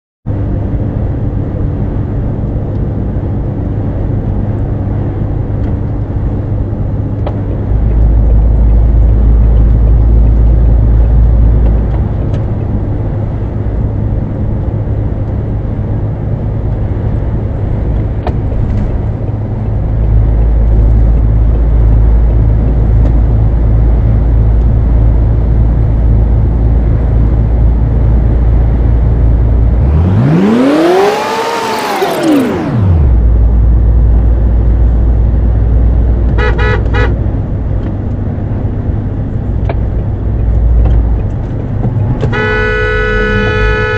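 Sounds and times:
deep rumble: 0.3s - 31.1s, 31.8s - 42.4s
lorry engine and tyre drone: 0.3s - 43.9s.

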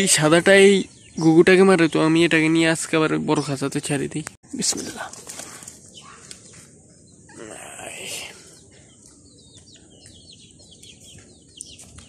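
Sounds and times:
dove wings fluttering: 4.7s - 6.4s.

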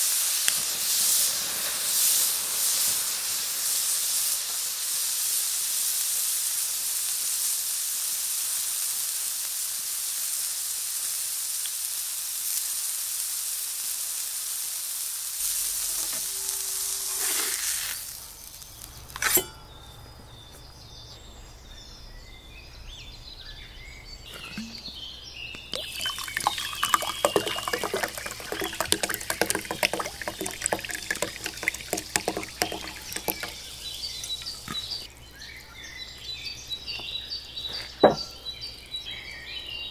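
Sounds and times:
steak sizzling on a griddle: 0.0s - 19.2s
sparkling water poured into glass: 15.4s - 19.5s, 25.6s - 35.1s.

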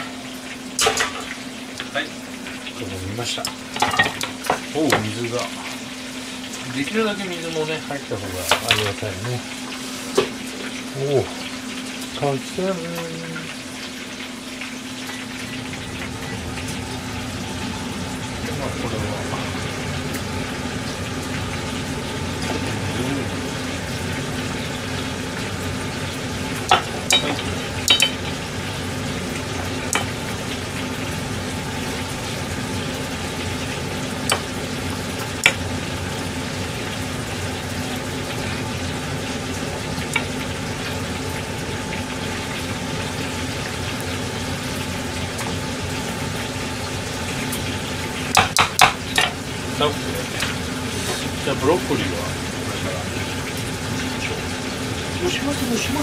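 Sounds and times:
chicken deep-frying in oil: 0.0s - 56.0s
potato masher knocking saucepan: 48.3s - 49.4s.

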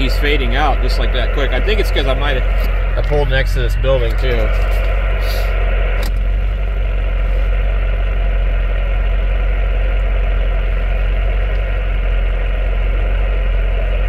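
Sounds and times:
radio static hiss: 0.0s - 8.7s
vehicle engine idling: 0.0s - 14.0s.

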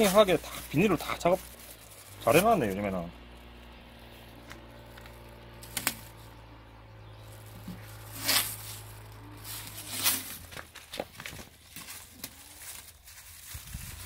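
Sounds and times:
plastic film crinkling: 0.0s - 14.0s
sharp plastic crackles: 0.0s - 14.0s
low hum: 1.4s - 10.7s.

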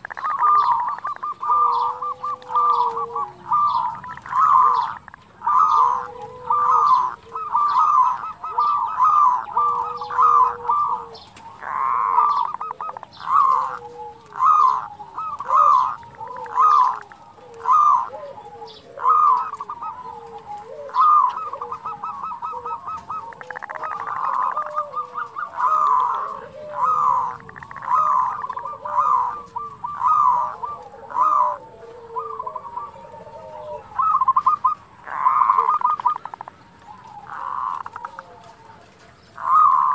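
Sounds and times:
rattling bird trills: 0.0s - 18.2s
dove cooing: 0.0s - 39.9s.

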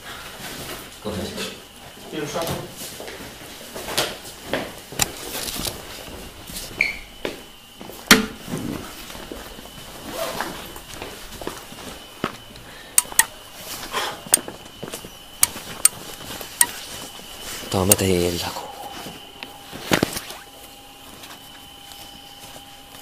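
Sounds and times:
footsteps: 1.8s - 12.5s
sharp clicks: 12.9s - 13.3s.

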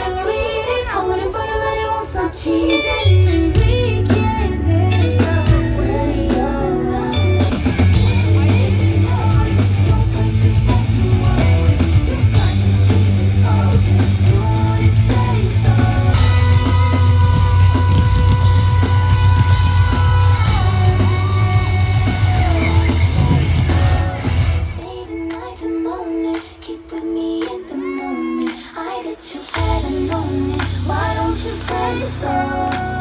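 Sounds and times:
pop music on sound system: 0.0s - 33.0s
woman singing: 0.0s - 33.0s
heavy bass: 3.4s - 24.9s.

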